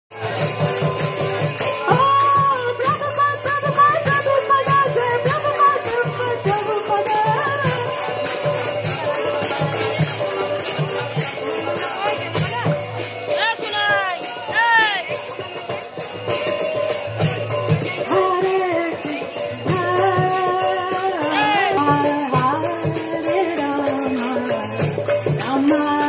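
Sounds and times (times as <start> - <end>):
hand cymbals beat: 0.1 - 26.0.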